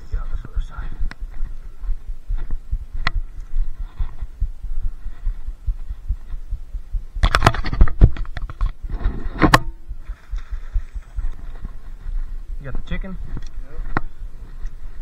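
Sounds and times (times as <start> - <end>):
camera handling thumps: 7.2 - 8.8
clattering and scraping: 7.2 - 12.2.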